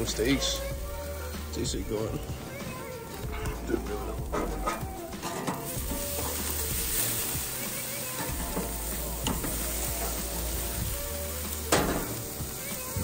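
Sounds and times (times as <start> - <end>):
steaks sizzling on a grill: 0.0 - 13.0
metal tongs clicking on grate: 4.2 - 6.6, 8.2 - 10.2, 11.7 - 12.3.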